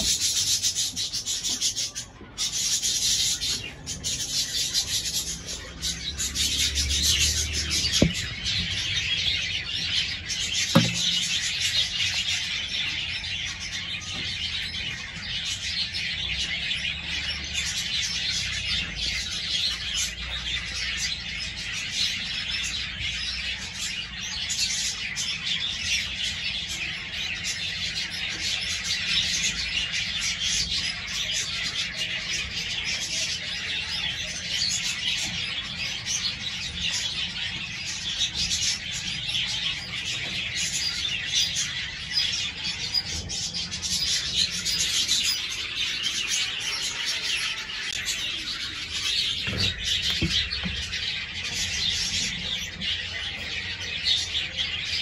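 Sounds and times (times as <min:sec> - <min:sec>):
birds chirping and chattering: 0:00.0 - 0:55.0
sharp knocks: 0:07.9 - 0:08.8, 0:10.7 - 0:11.7.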